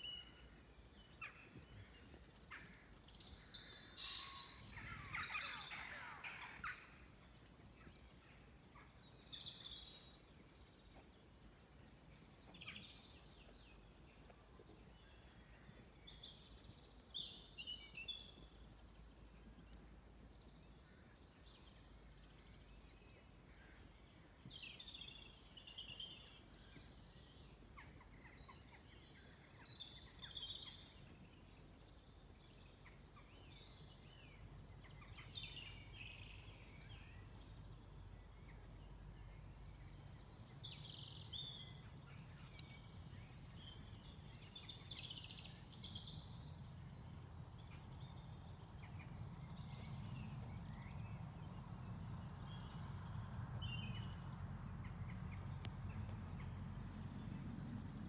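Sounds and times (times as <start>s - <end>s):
songbirds singing: 0.0s - 58.0s.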